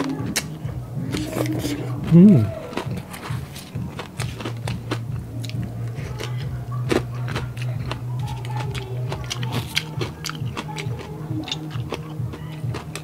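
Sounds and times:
background music with bass: 0.0s - 13.0s
crunchy chewing: 0.0s - 13.0s.

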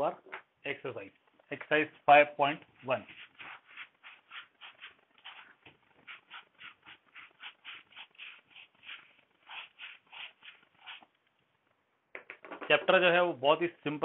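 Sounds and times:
duster wiping a whiteboard: 2.7s - 11.1s.

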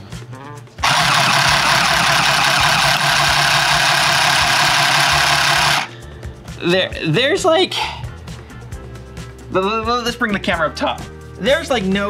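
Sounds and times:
handheld sewing machine running: 0.8s - 5.9s.

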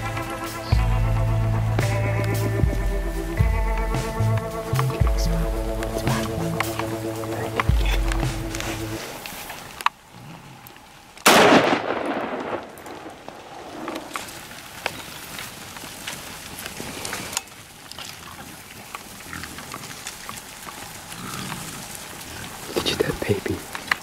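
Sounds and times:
herd of hogs rushing: 0.0s - 11.2s, 12.7s - 24.0s
scattered footfalls and knocks: 2.6s - 9.0s.

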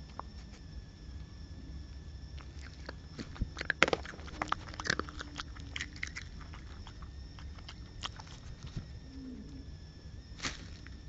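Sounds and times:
small animal chewing: 2.3s - 9.7s.

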